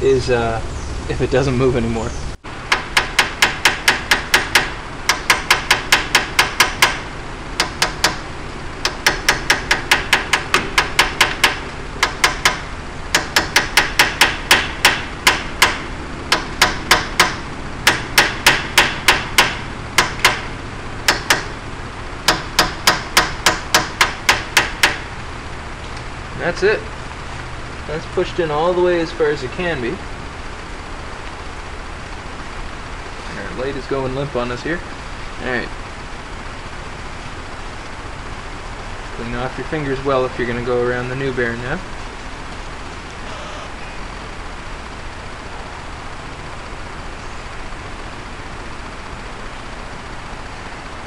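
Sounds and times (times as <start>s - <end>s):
hammer tapping on metal: 2.7s - 20.5s, 21.1s - 21.6s, 22.3s - 25.1s.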